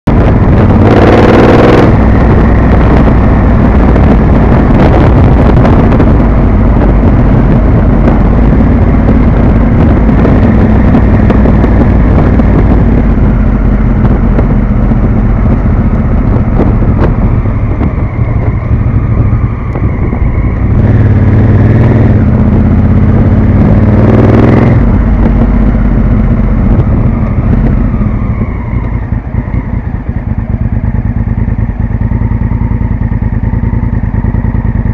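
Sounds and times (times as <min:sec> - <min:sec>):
motorcycle engine revving: 0:00.1 - 0:34.9.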